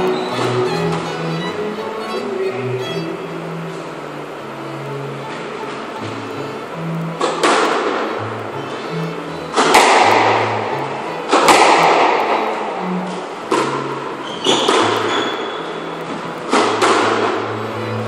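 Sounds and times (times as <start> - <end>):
squash ball hits echoing: 9.6 - 10.6, 11.3 - 12.4, 13.5 - 15.6, 16.5 - 17.4.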